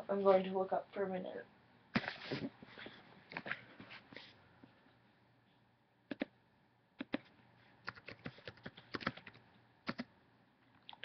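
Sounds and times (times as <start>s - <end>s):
typing on computer keyboard: 7.0s - 7.3s, 7.9s - 10.1s.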